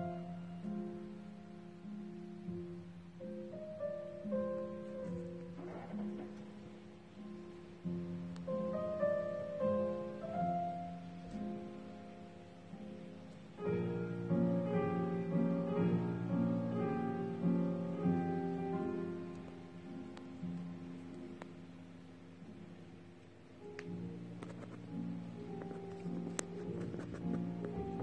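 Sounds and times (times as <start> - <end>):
piano music: 0.0 - 28.0.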